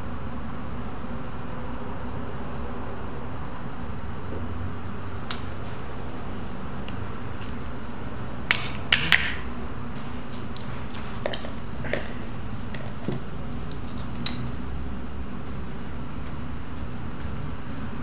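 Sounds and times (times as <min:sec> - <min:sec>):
steady low hum: 0:00.0 - 0:18.0
shell pieces clicking: 0:08.5 - 0:09.4
walnut shells cracking: 0:08.5 - 0:09.4, 0:10.5 - 0:14.7.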